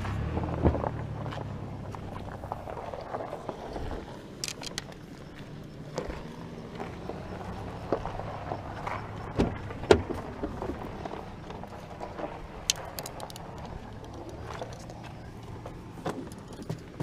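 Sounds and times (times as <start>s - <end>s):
fishing gear clattering: 4.4s - 5.0s, 12.6s - 15.1s.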